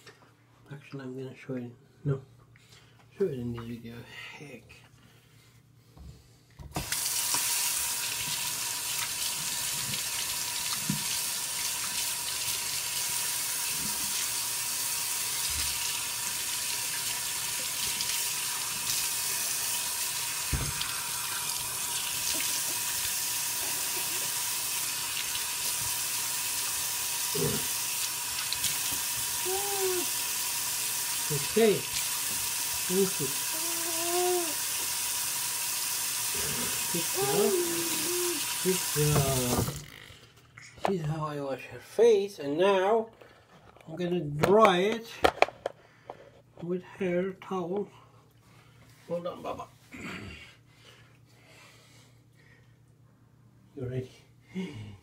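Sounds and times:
faucet turned on: 6.8 - 39.8
water running into basin: 6.8 - 39.8.

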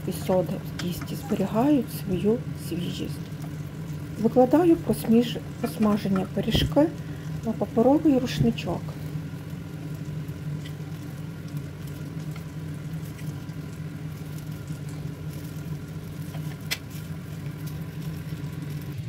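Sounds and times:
fritters sizzling in oil: 0.0 - 19.0
steady low hum: 0.0 - 19.0.

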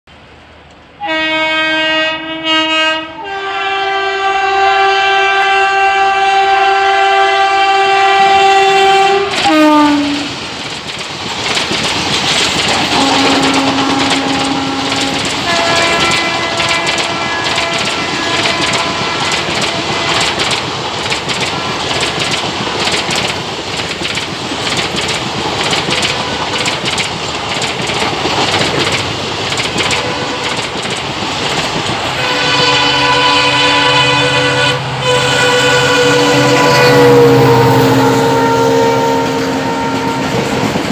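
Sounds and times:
train horn blasts: 1.0 - 10.4, 12.9 - 20.5, 26.0 - 26.8, 29.8 - 30.7, 32.1 - 40.8
train wheels clicking over rail joints: 9.2 - 32.7, 40.2 - 40.9.

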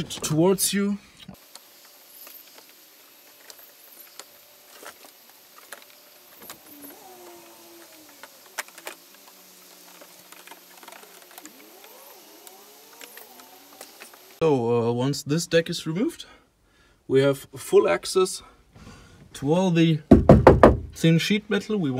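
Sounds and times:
plastic trim rustling: 2.3 - 14.4
plastic clicks: 7.7 - 14.4.

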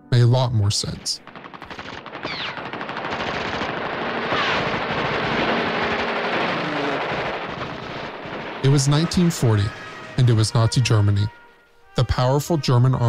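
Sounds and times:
machine-gun fire: 1.2 - 10.6
falling whistles: 9.6 - 11.6.

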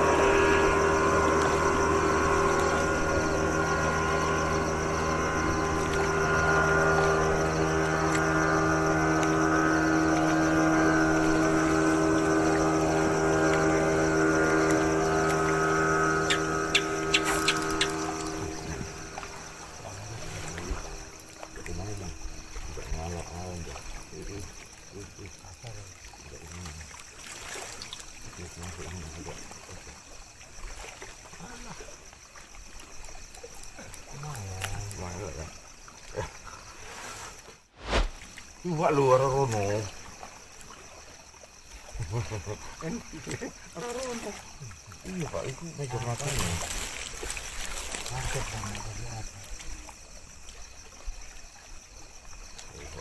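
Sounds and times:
engine running steadily: 0.0 - 24.4
water splashing and trickling: 0.0 - 53.0.

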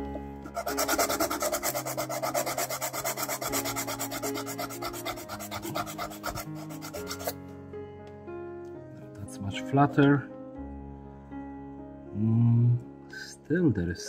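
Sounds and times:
sandpaper scratching: 0.4 - 7.4.

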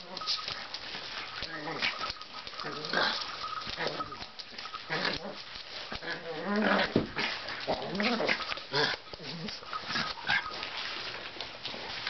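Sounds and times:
puppy whimpering and growling: 1.4 - 10.6.

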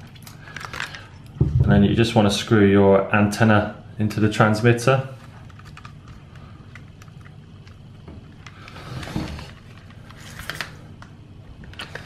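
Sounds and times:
plastic rubbing sounds: 5.1 - 12.0.

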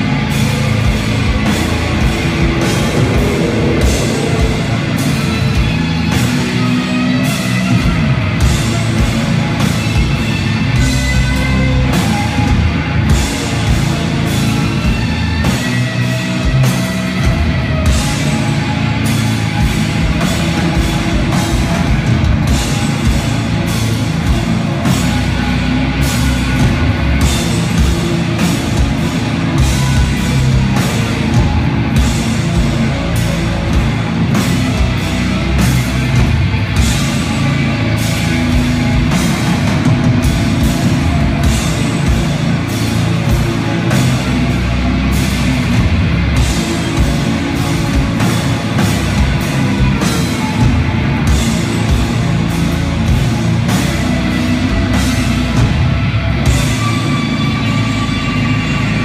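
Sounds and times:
bass guitar: 0.0 - 59.0
distorted electric guitars: 0.0 - 59.0
drum kit and cymbal hits: 0.0 - 59.0.

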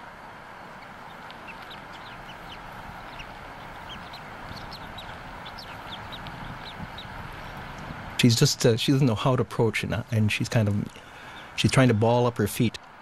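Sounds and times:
background hiss: 0.0 - 13.0
eaglet peeping: 0.7 - 7.9, 11.0 - 11.6.

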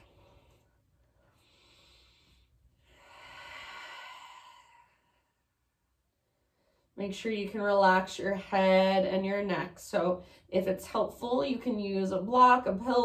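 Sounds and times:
woman breathing deeply: 0.0 - 7.0.

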